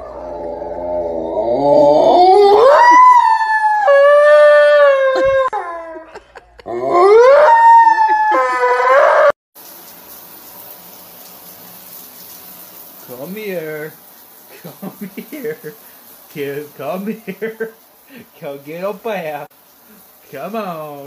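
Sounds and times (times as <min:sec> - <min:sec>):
dog howling: 0:00.0 - 0:06.1, 0:06.7 - 0:09.4.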